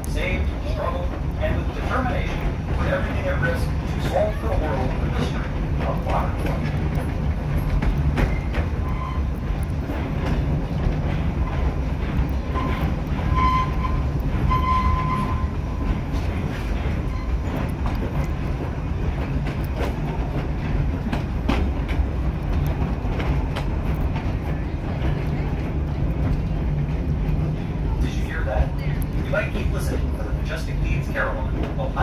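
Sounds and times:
train coach rumbling: 0:00.0 - 0:32.0
wheels clicking over rail joints: 0:00.0 - 0:32.0
faint high squeals: 0:08.4 - 0:09.4, 0:17.0 - 0:17.6.

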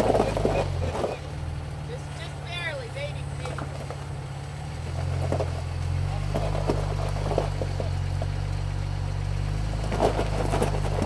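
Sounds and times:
tyres and chassis knocking on rock: 0:00.0 - 0:01.3, 0:03.3 - 0:04.2, 0:04.8 - 0:08.4, 0:09.8 - 0:11.0
engine running low: 0:00.0 - 0:11.0.

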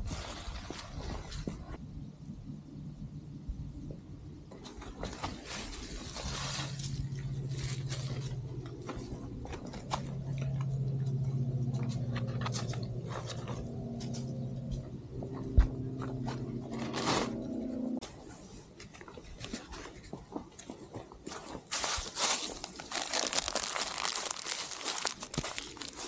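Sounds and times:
steady low hum: 0:00.1 - 0:22.9
paper tissue crinkling: 0:04.5 - 0:10.4, 0:16.8 - 0:26.0
dry leaves crunching: 0:04.5 - 0:15.3, 0:15.9 - 0:26.0.

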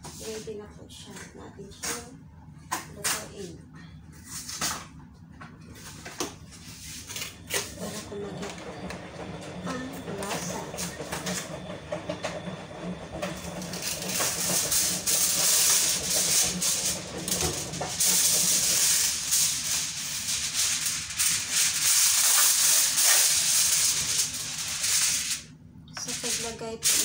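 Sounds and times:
aluminium foil crinkling: 0:13.6 - 0:27.0.

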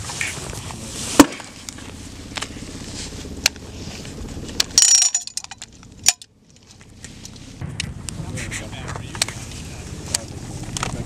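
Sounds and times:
ringing metallic rattle: 0:04.7 - 0:06.3.

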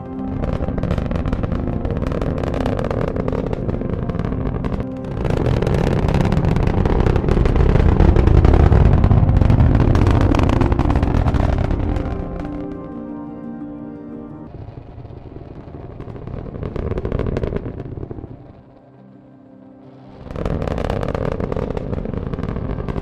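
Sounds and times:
rocket engine rumbling: 0:00.0 - 0:13.1
faint background music: 0:00.0 - 0:14.8, 0:16.8 - 0:23.0.

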